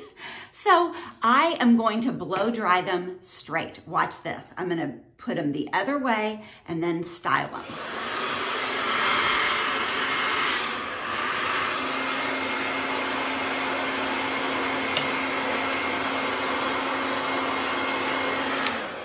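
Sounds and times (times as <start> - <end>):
hair dryer rushing air: 7.5 - 19.0.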